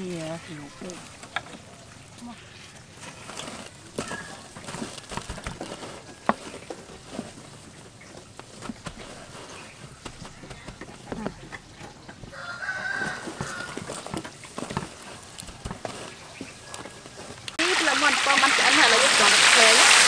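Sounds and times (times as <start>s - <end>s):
breadcrumbs rustling and crunching: 2.4s - 17.7s
chicken calling: 10.0s - 14.0s.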